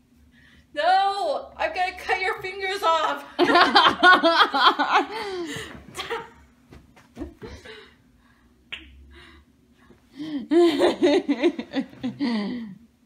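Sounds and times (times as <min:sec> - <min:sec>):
laughter: 0:03.4 - 0:05.4, 0:10.5 - 0:12.6.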